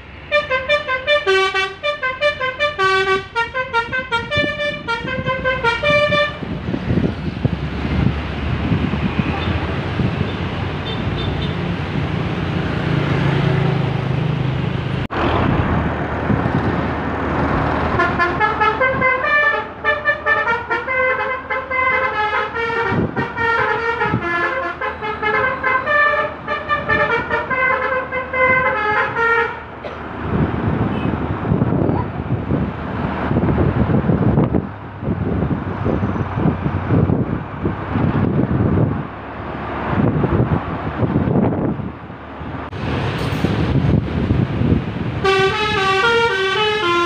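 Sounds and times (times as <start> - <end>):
traffic and engine noise: 0.0 - 47.0
musical bus horn tune: 0.2 - 6.5, 17.9 - 29.7, 45.2 - 47.0.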